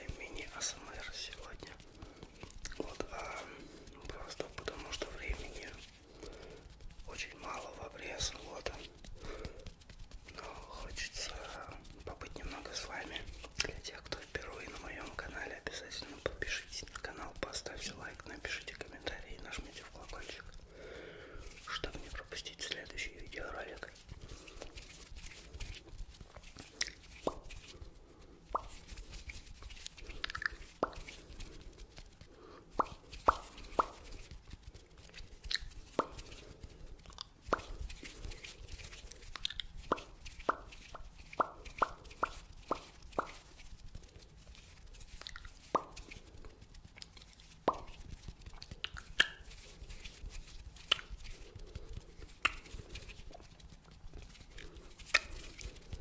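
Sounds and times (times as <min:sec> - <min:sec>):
wet mouth pops and clicks: 0:02.4 - 0:03.0, 0:26.6 - 0:27.6, 0:28.5 - 0:28.8, 0:30.1 - 0:31.2, 0:32.8 - 0:34.0, 0:35.4 - 0:36.2, 0:37.1 - 0:37.8, 0:39.3 - 0:43.4, 0:45.2 - 0:46.0, 0:47.7 - 0:48.0, 0:48.6 - 0:49.4, 0:50.8 - 0:51.1, 0:52.4 - 0:52.7, 0:55.0 - 0:55.4.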